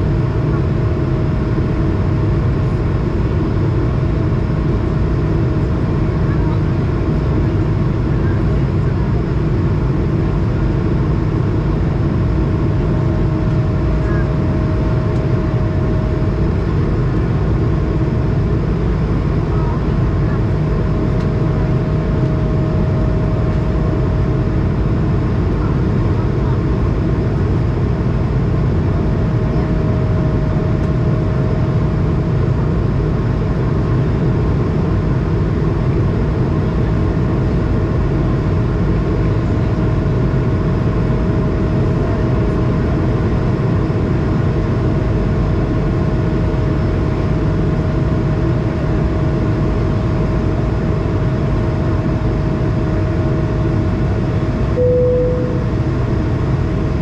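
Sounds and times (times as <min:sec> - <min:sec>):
aircraft cabin roar: 0:00.0 - 0:57.0
steady droning tone: 0:11.8 - 0:18.7, 0:19.4 - 0:33.3, 0:50.3 - 0:57.0
single tone: 0:54.8 - 0:56.2.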